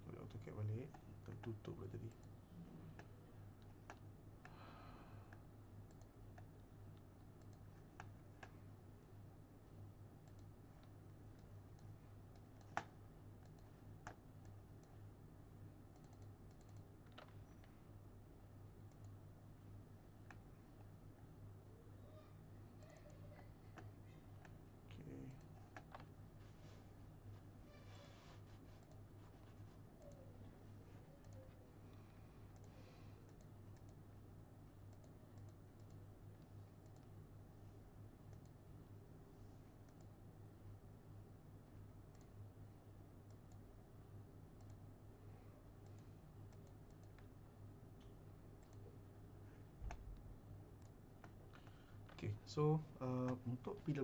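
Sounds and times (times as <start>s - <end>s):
low steady hum: 0.0s - 54.0s
computer mouse and keyboard clicks: 3.0s - 4.1s, 5.3s - 8.6s, 10.2s - 15.0s, 15.9s - 17.8s, 25.3s - 26.2s, 44.6s - 44.8s, 48.0s - 48.9s, 50.8s - 52.2s.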